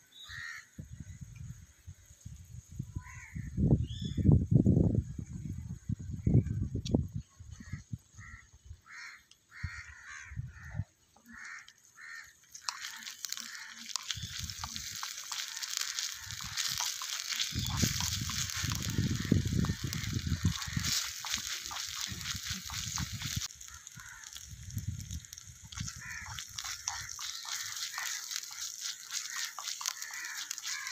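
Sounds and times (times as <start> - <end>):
bird calling: 8.3 - 24.4, 25.8 - 30.9
onions sizzling in oil: 11.2 - 30.9.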